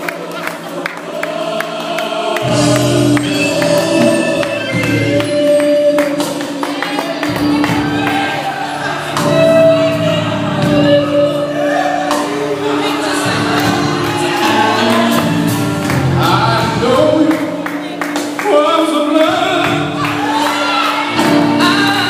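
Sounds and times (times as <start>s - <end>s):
gospel singing: 0.0s - 22.0s
bass line: 2.4s - 6.2s.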